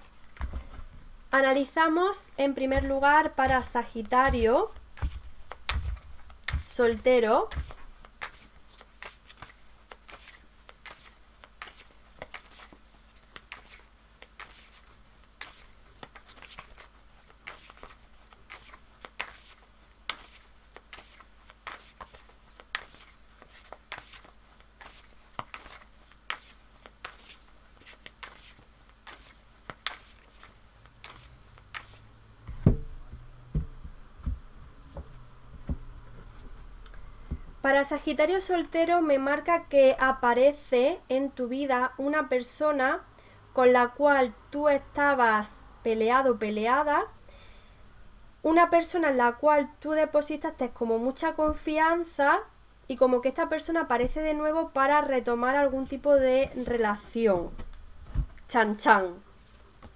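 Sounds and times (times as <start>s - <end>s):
cards being shuffled: 2.6s - 32.7s, 34.9s - 37.4s, 55.8s - 58.5s, 59.3s - 59.9s
soft thuds: 32.5s - 36.6s, 57.4s - 58.4s.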